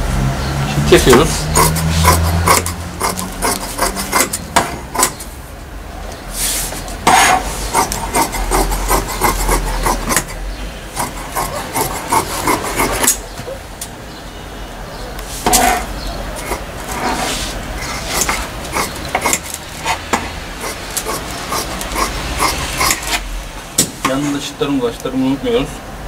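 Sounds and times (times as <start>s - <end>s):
shears snipping fabric: 15.4s - 23.2s.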